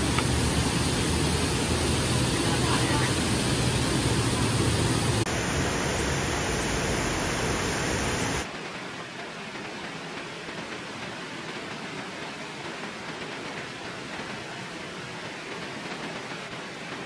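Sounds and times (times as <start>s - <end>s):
waterfall rushing: 0.0s - 8.5s.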